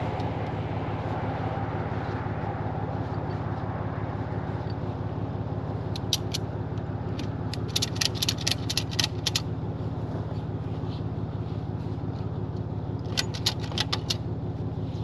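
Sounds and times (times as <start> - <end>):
truck engine idling: 0.0 - 15.0
metal hardware clinking: 7.2 - 9.4, 13.0 - 14.2.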